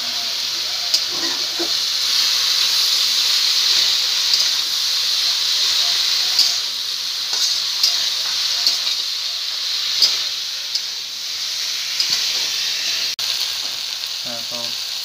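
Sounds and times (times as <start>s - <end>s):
vegetables sizzling in oil: 0.0s - 15.0s
metal spatula clicking on pan: 4.3s - 4.6s, 6.4s - 6.6s, 7.3s - 9.1s.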